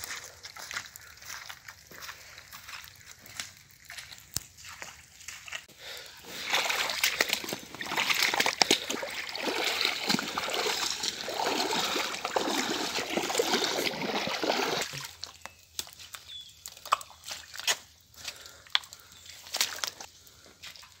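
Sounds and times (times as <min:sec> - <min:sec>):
footsteps snapping twigs: 0:00.0 - 0:05.7, 0:14.9 - 0:20.1
boots splashing through water: 0:04.6 - 0:15.3.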